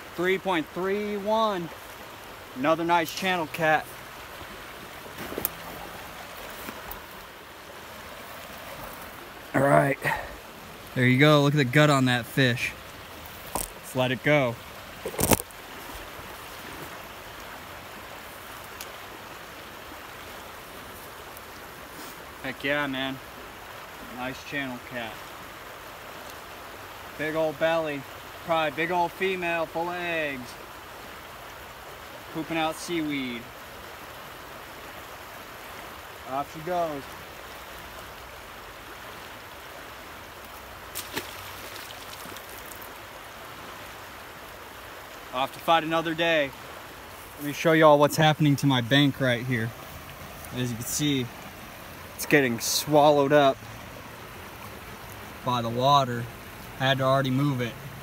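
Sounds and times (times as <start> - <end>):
river current rushing: 0.0 - 58.0.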